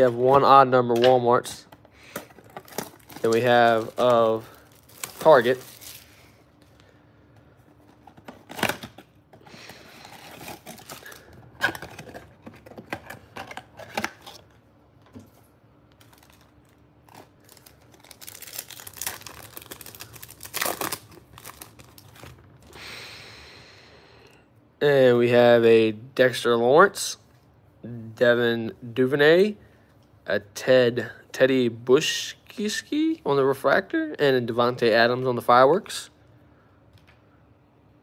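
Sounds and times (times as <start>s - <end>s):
wrappers crinkling and tearing: 2.0s - 6.4s, 8.4s - 14.4s, 15.9s - 22.4s.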